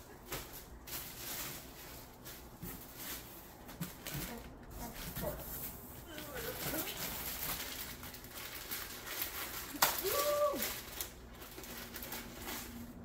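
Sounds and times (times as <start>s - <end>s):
plastic packaging crinkling: 6.0s - 13.0s.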